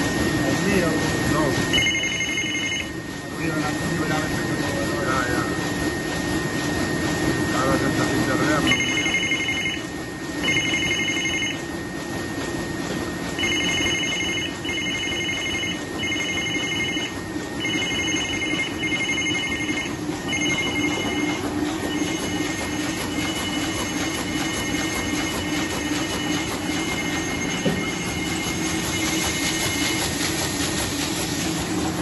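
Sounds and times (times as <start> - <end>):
printing press running: 0.0 - 32.0
electronic beeper: 8.5 - 11.6.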